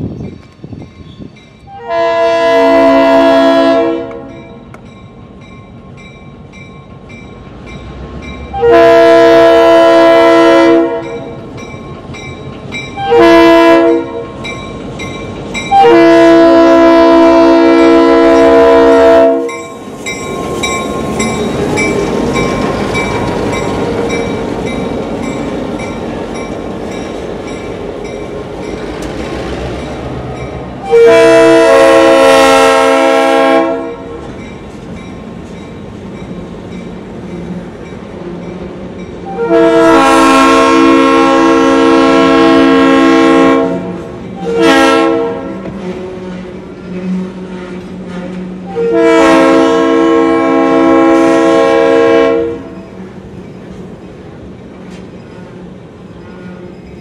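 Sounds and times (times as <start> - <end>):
train wheels rumbling on rails: 0.0 - 57.0
locomotive air horn blasts: 1.7 - 4.4, 8.5 - 11.4, 13.0 - 14.3, 15.7 - 19.7, 30.8 - 34.2, 39.2 - 52.8.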